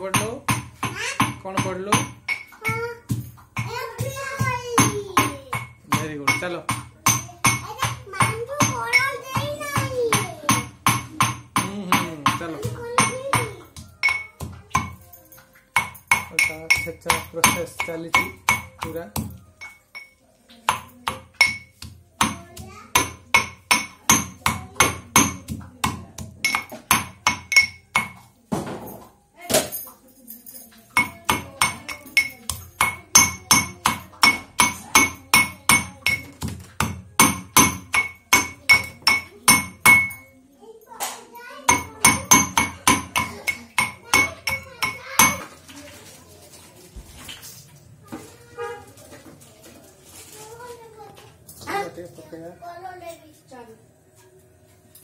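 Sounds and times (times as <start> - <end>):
pestle striking metal mortar: 0.0 - 15.0, 15.7 - 28.7, 31.0 - 40.3, 41.7 - 45.6.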